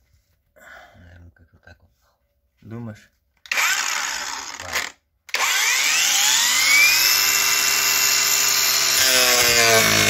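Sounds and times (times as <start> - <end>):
angle grinder whining: 3.5 - 10.0.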